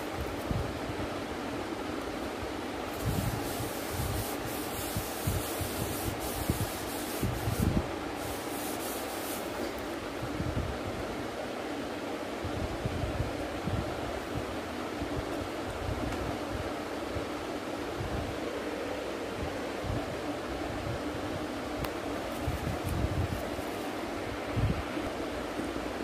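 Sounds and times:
rushing air noise: 0.0 - 11.0
hand rubbing on paper: 2.9 - 9.8, 22.2 - 24.0
wind buffeting on microphone: 4.8 - 7.9, 22.4 - 23.6.

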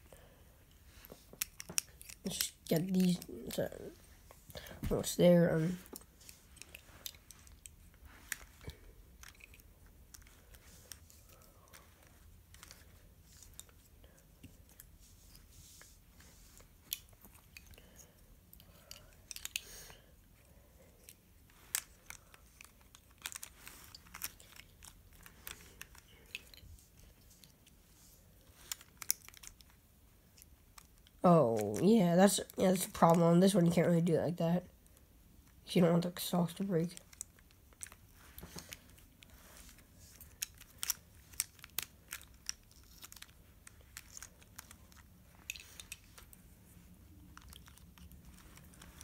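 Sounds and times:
plastic puzzle pieces clicking: 1.3 - 3.6, 18.6 - 19.7, 21.0 - 26.7, 40.1 - 46.3.

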